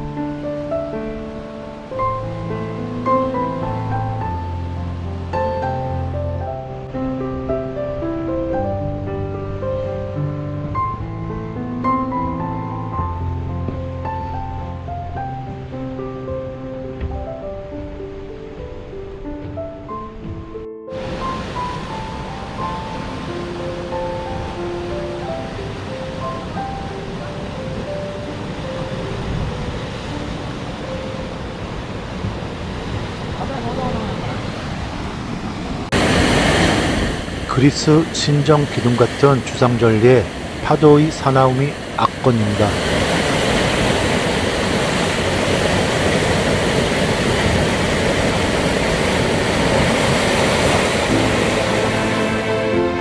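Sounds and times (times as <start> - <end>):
surf breaking against cliffs: 18.7 - 53.0.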